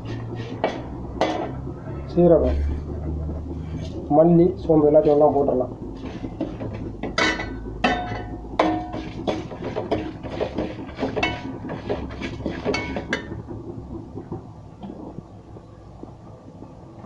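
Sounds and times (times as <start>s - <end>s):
steel ladle scraping metal pot: 0.0s - 4.1s, 6.0s - 13.4s.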